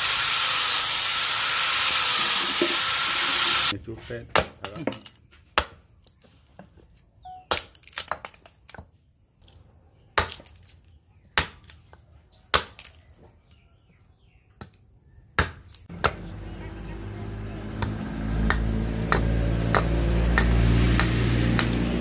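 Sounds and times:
blade chopping wood: 15.4 - 16.5, 17.8 - 22.0.

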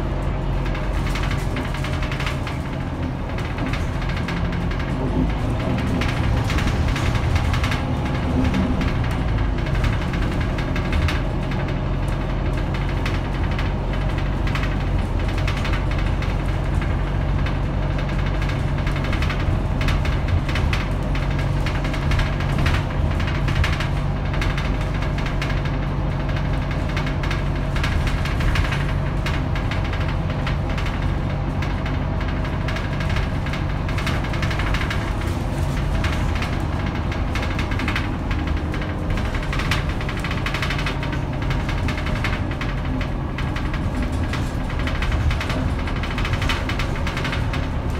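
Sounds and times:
bus diesel engine drone: 0.0 - 47.9
cabin fittings rattling: 12.5 - 47.9.

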